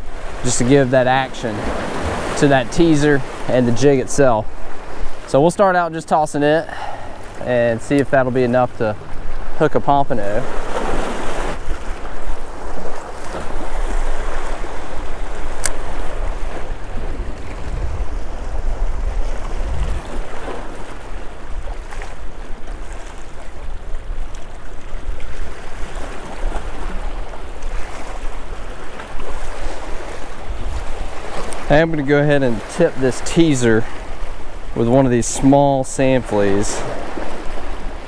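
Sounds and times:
wind rumbling on microphone: 0:06.8 - 0:32.0
small waves splashing against rocks: 0:10.2 - 0:34.7
sharp click: 0:15.6 - 0:15.9.

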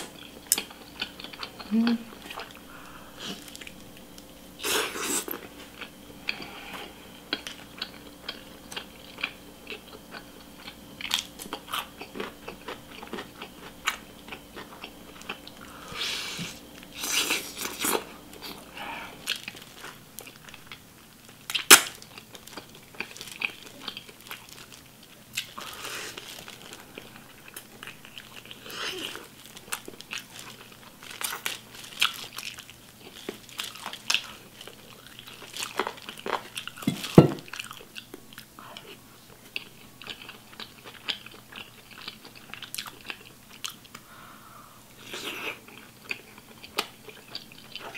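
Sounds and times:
wet chewing and smacking: 0:00.2 - 0:02.6.

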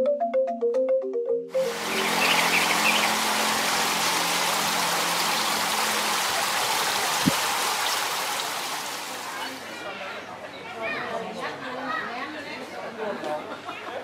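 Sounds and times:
water splashing over stone steps: 0:01.6 - 0:09.7.

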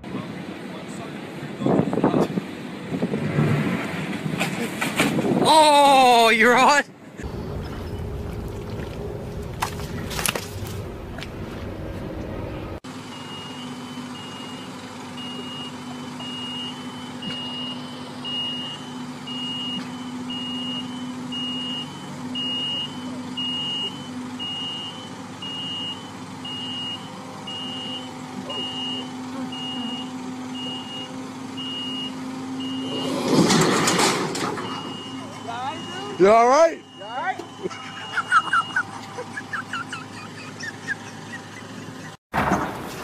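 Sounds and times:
engine humming: 0:07.0 - 0:43.0
motion alarm beeping: 0:13.1 - 0:33.2, 0:34.6 - 0:39.3.

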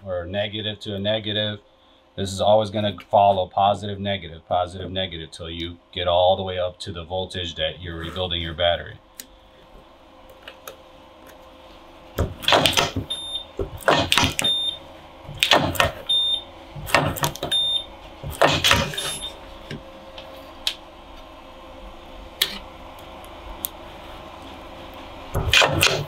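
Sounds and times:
spot welder clacks: 0:12.2 - 0:14.6, 0:15.3 - 0:16.1, 0:16.8 - 0:17.6, 0:18.2 - 0:19.8.

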